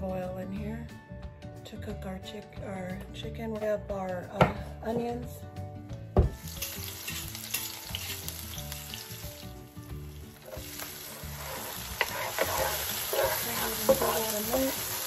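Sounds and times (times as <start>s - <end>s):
onions sizzling in oil: 6.4s - 15.0s
wooden spoon knocking on pan: 12.0s - 15.0s.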